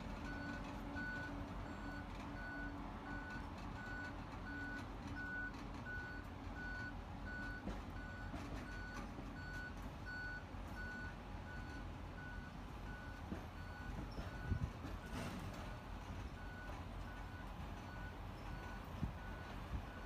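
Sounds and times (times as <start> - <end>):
reversing alarm beeping: 0.2 - 15.8.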